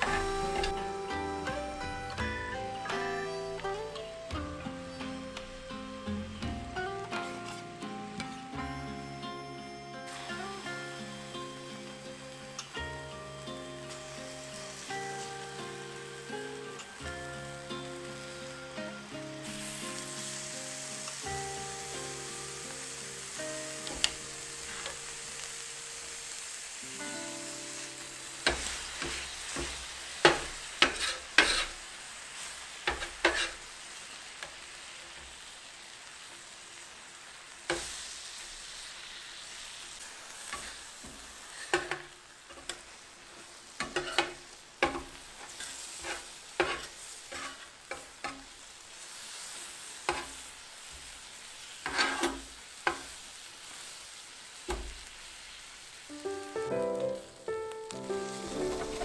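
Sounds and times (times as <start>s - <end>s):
meat sizzling on a griddle: 0.0s - 59.0s
metal spatulas scraping and knocking: 28.5s - 31.7s, 32.9s - 33.6s, 43.8s - 48.4s, 51.8s - 52.4s.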